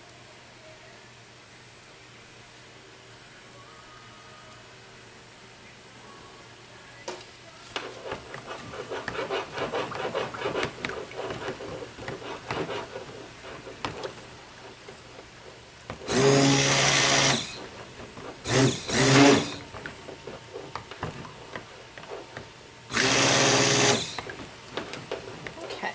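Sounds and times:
stick blender motor bursts: 16.0s - 17.8s, 18.4s - 19.8s, 22.9s - 24.4s.

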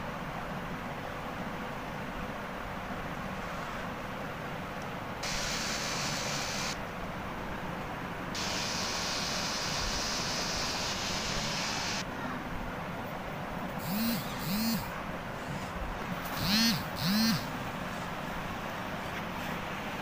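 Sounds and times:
steady low hum: 0.0s - 20.0s
electric drill running: 5.2s - 6.8s, 13.8s - 14.9s, 16.3s - 17.5s.

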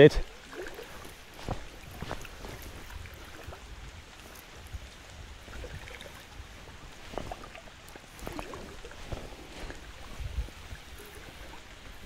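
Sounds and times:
river water flowing: 0.0s - 12.0s.

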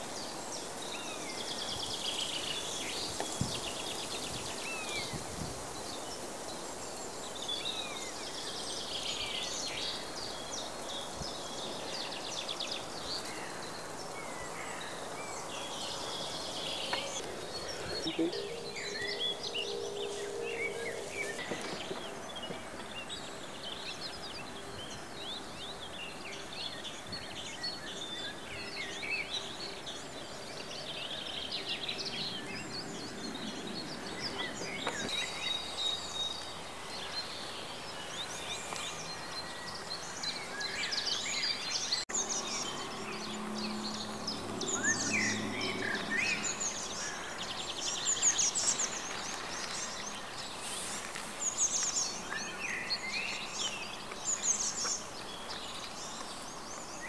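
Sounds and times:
outdoor background hiss: 0.0s - 57.0s
small birds chirping: 0.0s - 57.0s.

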